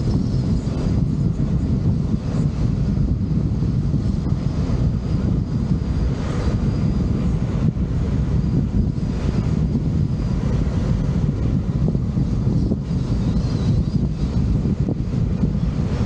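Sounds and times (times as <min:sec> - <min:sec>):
vehicle road rumble: 0:00.0 - 0:16.0
wind buffeting microphone: 0:00.0 - 0:16.0.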